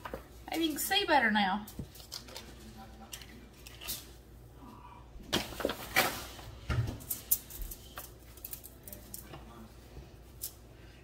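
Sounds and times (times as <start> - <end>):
crinkly rustles: 1.7 - 4.2.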